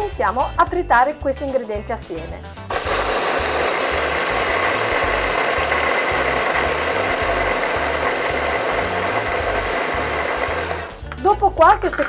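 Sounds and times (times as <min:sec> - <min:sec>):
blades grinding seeds: 0:02.7 - 0:11.0
electric chopper motor whine: 0:02.7 - 0:11.0.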